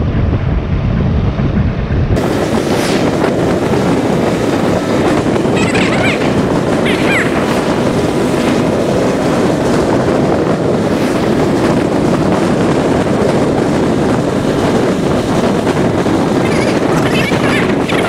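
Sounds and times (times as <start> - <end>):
motorcycle running: 0.0 - 18.0
wind buffeting microphone: 0.0 - 18.0.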